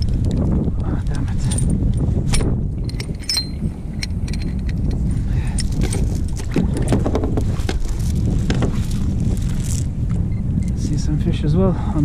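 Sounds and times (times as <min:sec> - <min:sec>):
steady low rumble: 0:00.0 - 0:12.0
metal chain clinking: 0:01.4 - 0:07.0.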